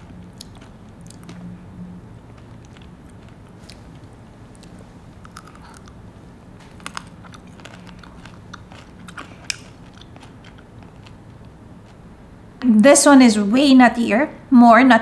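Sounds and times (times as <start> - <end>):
chewing mouth sounds: 0.0 - 1.5, 2.3 - 6.0, 6.6 - 12.0
crisp pastry crunches: 0.0 - 1.5, 2.3 - 6.0, 6.6 - 12.0.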